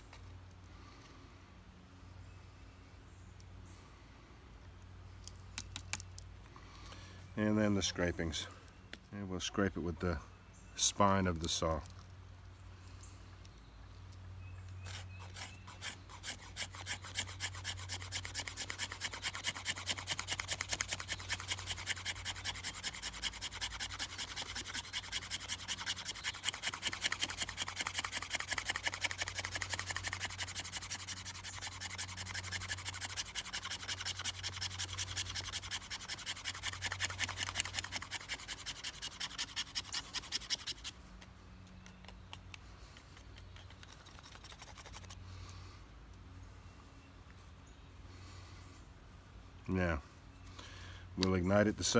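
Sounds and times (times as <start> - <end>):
blade scraping wooden stick: 14.8 - 41.0.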